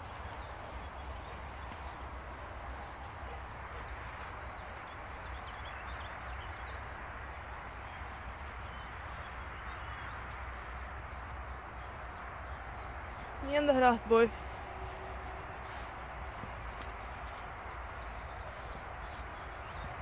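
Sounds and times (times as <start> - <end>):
small birds chirping: 0.0 - 6.9, 7.8 - 20.0.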